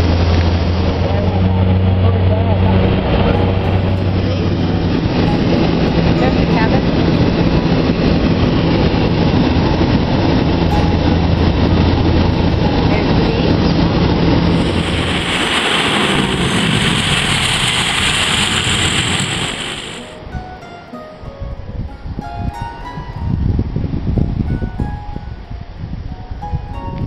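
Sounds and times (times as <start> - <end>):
hissing engine noise: 0.0 - 20.2
turboprop engines droning: 0.0 - 20.6.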